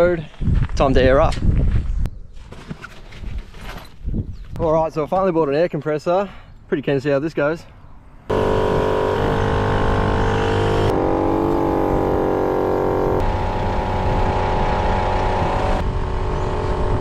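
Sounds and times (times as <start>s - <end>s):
air compressor running: 8.3s - 17.0s.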